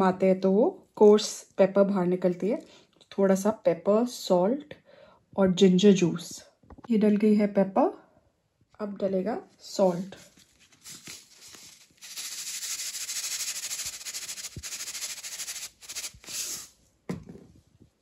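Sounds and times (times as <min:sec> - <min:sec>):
short brushing sounds: 0:09.9 - 0:16.8
salt rasping over fish: 0:10.7 - 0:16.7.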